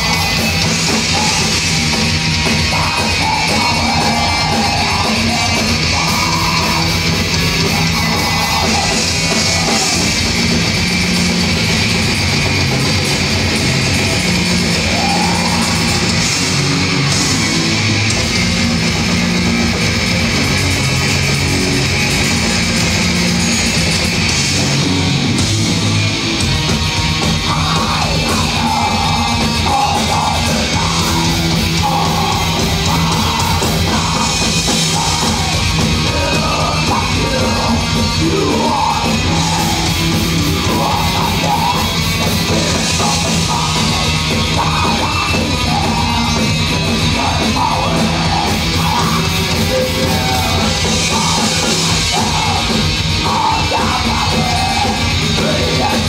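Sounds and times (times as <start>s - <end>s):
person singing: 0.0s - 10.5s, 14.4s - 17.4s, 27.4s - 56.0s
heavy metal band playing: 0.0s - 56.0s.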